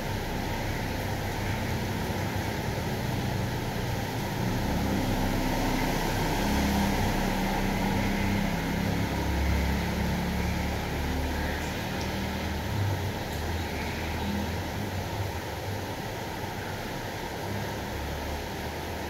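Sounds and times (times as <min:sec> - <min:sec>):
rain hiss: 0:00.0 - 0:19.0.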